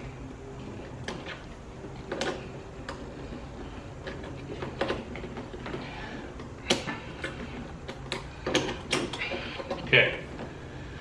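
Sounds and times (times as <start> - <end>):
hose fittings clicking and knocking: 2.0 - 10.5.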